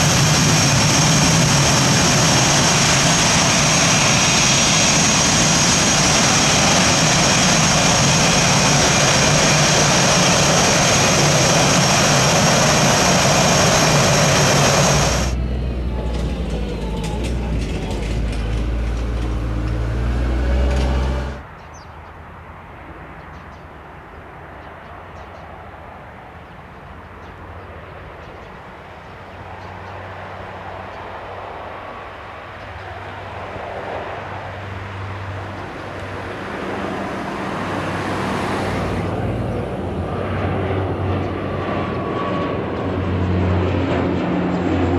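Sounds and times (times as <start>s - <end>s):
aircraft engines whining: 0.0s - 21.4s, 27.8s - 44.9s
low rumble: 0.0s - 21.4s.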